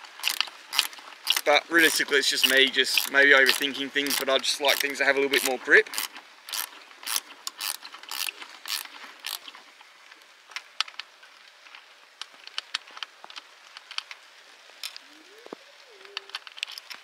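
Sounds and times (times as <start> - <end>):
ratchet spanner clicking: 0.2 - 9.5
small metallic clicks and taps: 0.2 - 9.6, 10.2 - 14.2.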